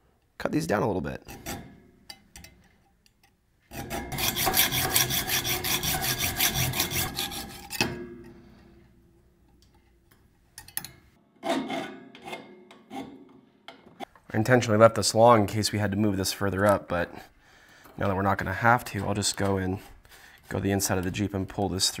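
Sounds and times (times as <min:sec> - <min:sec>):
hacksaw cutting metal bolt: 0:03.7 - 0:08.0.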